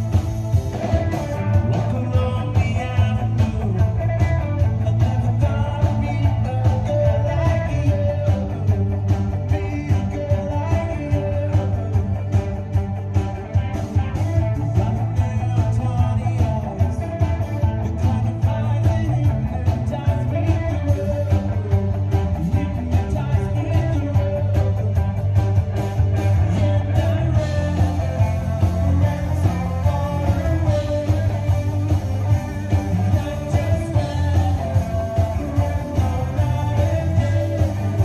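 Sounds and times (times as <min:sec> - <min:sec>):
bass line: 0:00.0 - 0:38.0
rock band playing: 0:00.0 - 0:38.0
steady drumbeat: 0:00.0 - 0:38.0.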